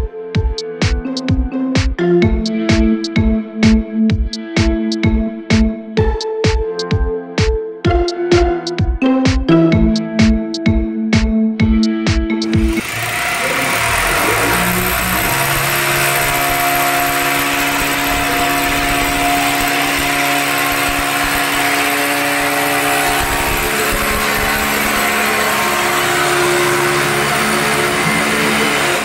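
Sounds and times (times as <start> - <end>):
hammer drill boring into wall: 12.6 - 29.0.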